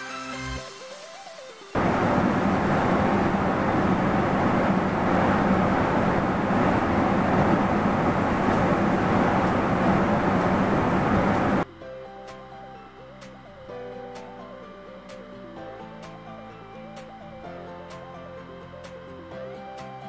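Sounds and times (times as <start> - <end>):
gas burner rushing: 1.8 - 11.6.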